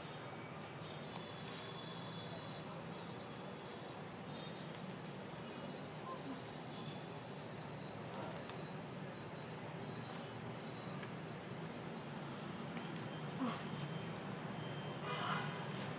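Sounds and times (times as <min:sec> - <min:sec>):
pen scratching on paper: 0:01.5 - 0:05.1, 0:05.7 - 0:10.1, 0:11.2 - 0:13.1.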